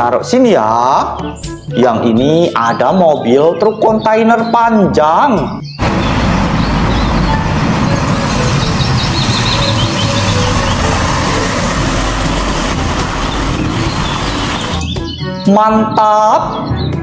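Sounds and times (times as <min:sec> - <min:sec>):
truck diesel engine driving past: 0:05.8 - 0:14.9.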